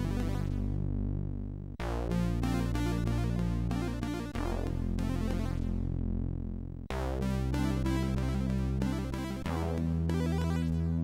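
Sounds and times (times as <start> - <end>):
synth bass notes: 0.0 - 11.0.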